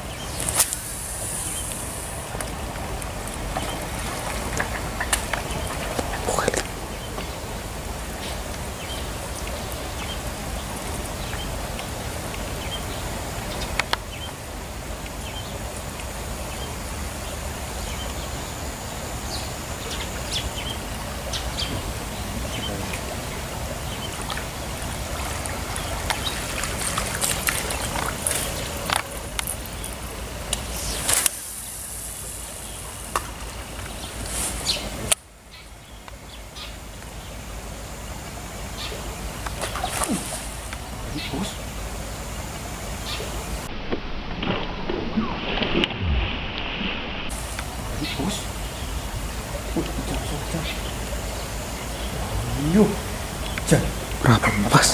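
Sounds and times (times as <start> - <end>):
water trickling: 0.0 - 43.7
faint high whine: 0.0 - 54.9.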